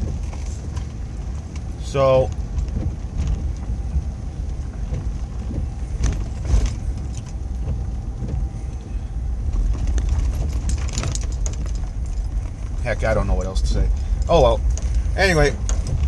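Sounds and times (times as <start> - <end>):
road and engine rumble in cabin: 0.0 - 16.0.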